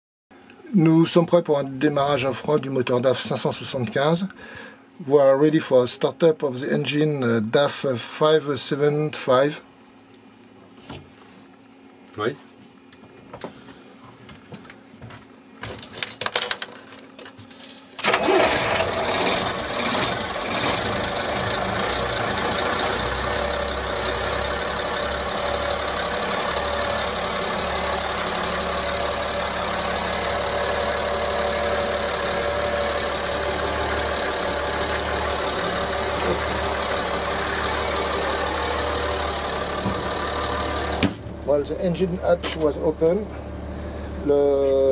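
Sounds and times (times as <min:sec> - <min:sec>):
starter motor cranking: 0:18.0 - 0:41.0
diesel engine idling: 0:18.0 - 0:44.4.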